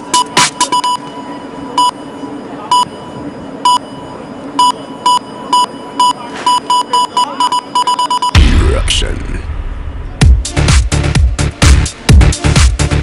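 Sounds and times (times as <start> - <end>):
electronic music beeps: 0.0 - 8.5, 10.2 - 13.0.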